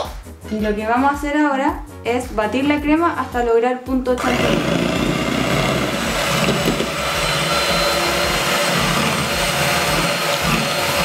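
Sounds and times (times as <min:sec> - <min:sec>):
electric hand mixer whipping cream: 0:04.2 - 0:11.0.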